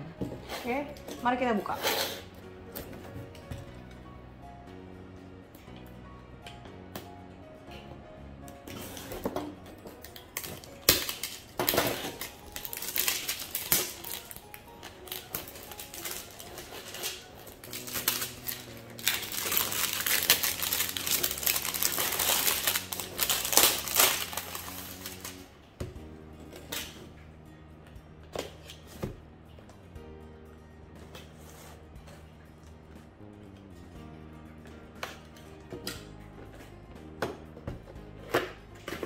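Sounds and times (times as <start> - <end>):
background music: 0.0 - 39.0
plastic packaging crinkling: 10.0 - 25.5.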